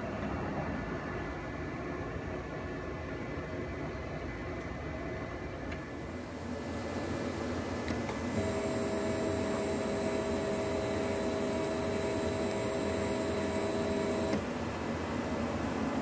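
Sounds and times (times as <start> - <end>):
stepper motor two-tone whine: 7.3 - 15.0.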